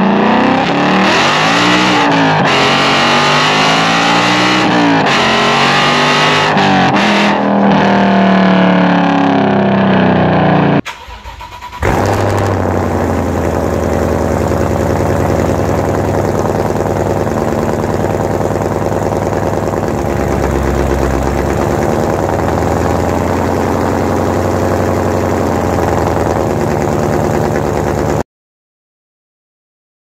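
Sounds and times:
car engine fast idle exhaust: 6.5s - 28.2s.

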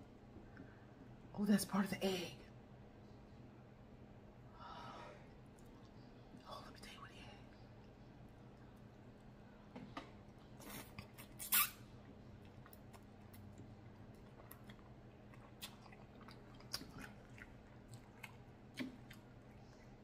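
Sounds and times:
close-up chewing with wet clicks: 5.3s - 11.4s, 12.0s - 20.0s
noodles slurped: 10.6s - 11.7s.

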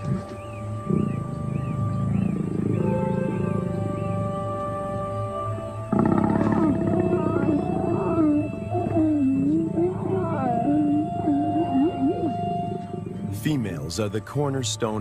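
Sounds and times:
lions growling: 5.8s - 13.5s.

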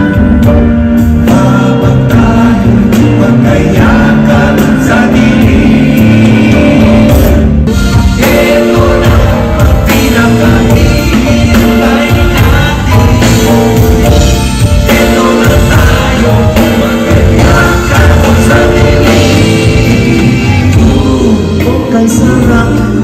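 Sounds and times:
band with drums: 0.0s - 23.0s
men singing: 0.0s - 23.0s.

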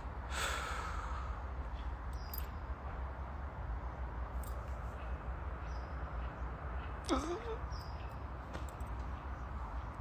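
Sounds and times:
low rumble and hiss: 0.0s - 5.6s.

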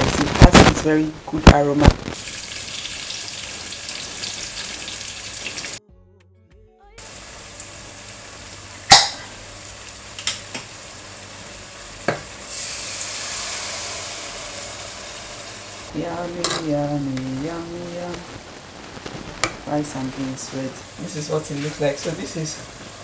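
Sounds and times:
onions sizzling in hot oil: 1.6s - 5.8s, 7.0s - 23.0s
tomato poured into hot oil: 2.2s - 5.8s, 7.0s - 15.9s
spoon knocking against pot: 8.9s - 9.2s.

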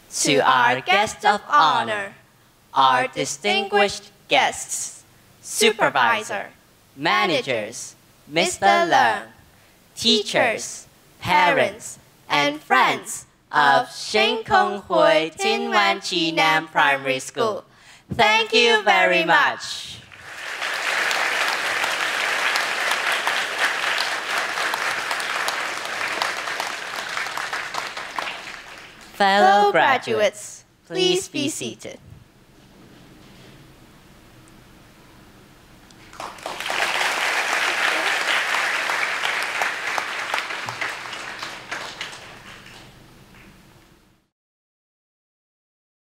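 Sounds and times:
audience applauding: 20.1s - 29.1s, 36.0s - 43.6s.

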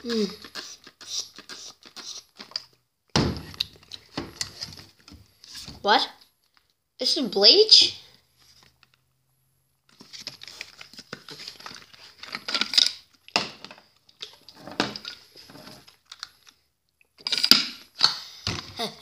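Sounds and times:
plastic bottle rustling and clicking: 9.9s - 16.6s, 17.2s - 17.9s.

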